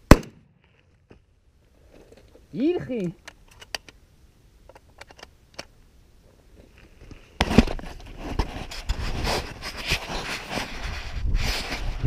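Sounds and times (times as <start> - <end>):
wind buffeting microphone: 10.7 - 12.0.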